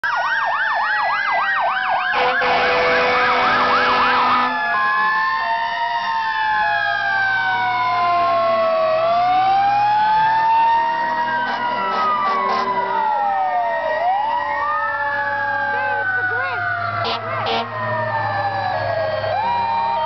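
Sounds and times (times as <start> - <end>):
fire truck sirens: 0.0 - 20.0
horn blast: 2.1 - 4.7, 11.4 - 13.1, 17.0 - 17.8.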